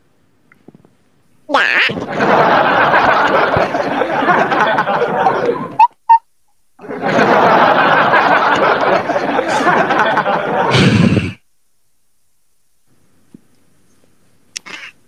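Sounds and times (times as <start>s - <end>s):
loud laughter: 1.9s - 5.9s, 6.8s - 11.4s.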